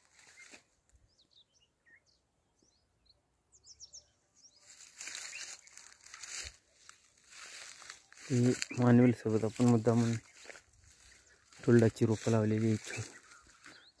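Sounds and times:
rustling crunch of dry leaves: 0.0 - 0.7, 4.6 - 14.0
small birds chirping: 0.0 - 14.0.

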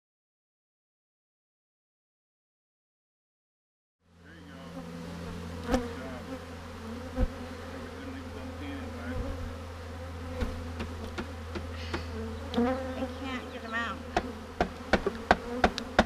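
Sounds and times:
bees buzzing: 4.1 - 16.0.

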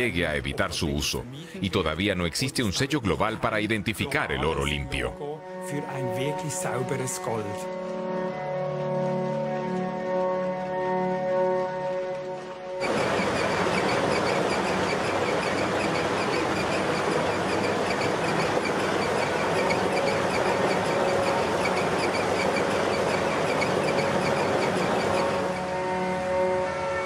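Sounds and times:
fast repeating ticking: 12.8 - 25.8
grinding mill clatter and rumble: 12.8 - 26.4.

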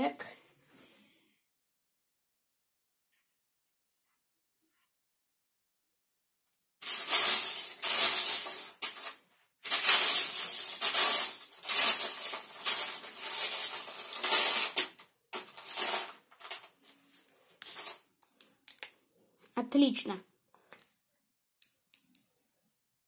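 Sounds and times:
plastic bricks clattering: 6.8 - 16.9.

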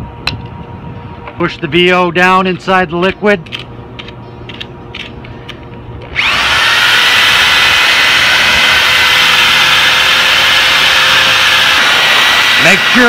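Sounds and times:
drill mixing mortar: 6.1 - 13.0.

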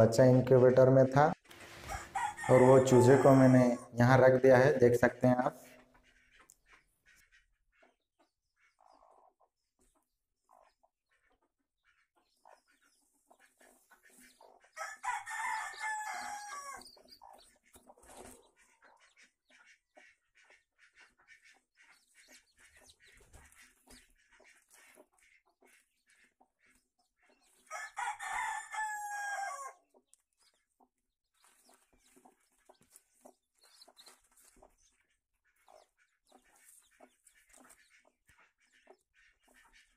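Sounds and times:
faint hen clucking: 0.0 - 39.9
rooster crowing: 1.8 - 3.9, 14.8 - 16.8, 27.7 - 29.8.

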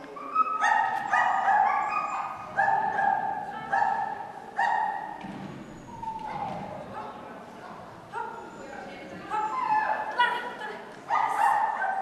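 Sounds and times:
dog barking: 0.6 - 5.1, 11.1 - 12.0.

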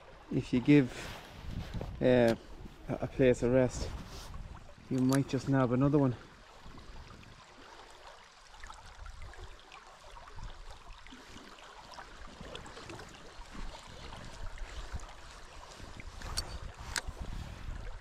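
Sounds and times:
wind buffeting microphone: 1.4 - 5.4, 12.4 - 18.0.

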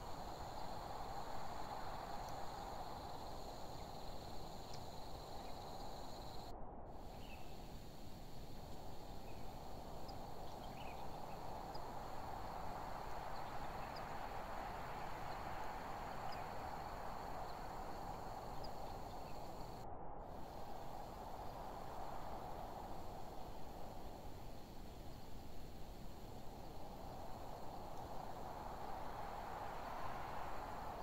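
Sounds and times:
insects trilling: 0.0 - 19.8
low rushing hiss: 0.0 - 19.8, 20.4 - 31.0.

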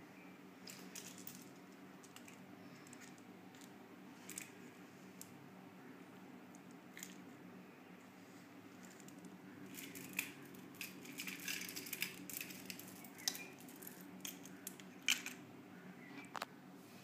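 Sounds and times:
faint low hum: 0.0 - 17.0
faint clicks and rustles: 8.0 - 15.4.

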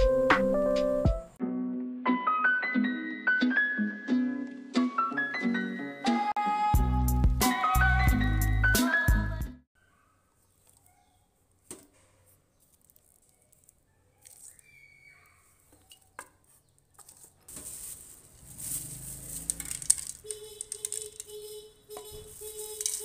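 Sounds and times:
rustling paper: 11.9 - 23.0.

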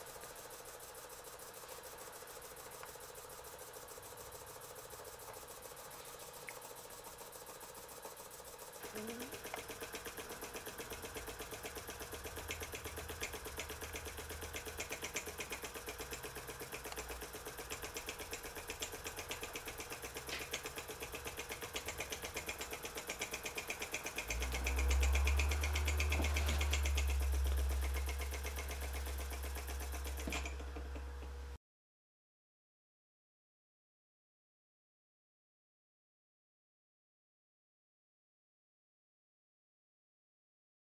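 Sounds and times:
steam engine ticking: 9.3 - 30.5.

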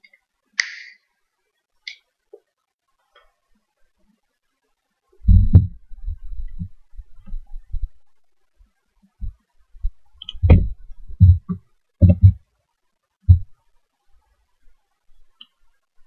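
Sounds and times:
keyboard keys thumping: 5.2 - 8.0, 10.2 - 12.4, 13.3 - 13.5.

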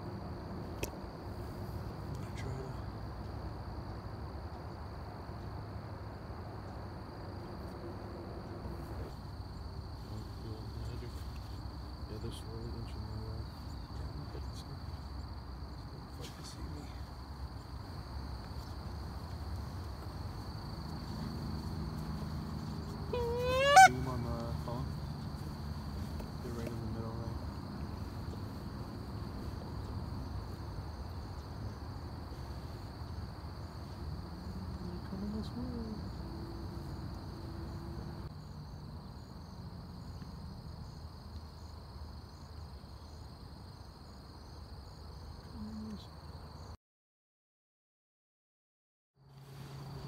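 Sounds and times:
high insect trill: 0.0 - 46.8, 49.2 - 50.0
faint low hum: 0.3 - 23.2.

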